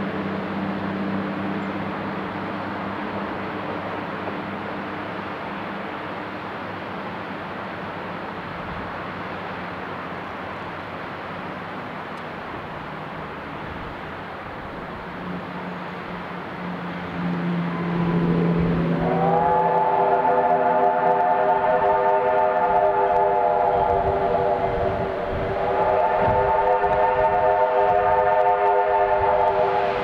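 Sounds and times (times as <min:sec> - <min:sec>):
steam locomotive rushing: 0:00.0 - 0:30.0
steam whistle blowing: 0:17.7 - 0:30.0.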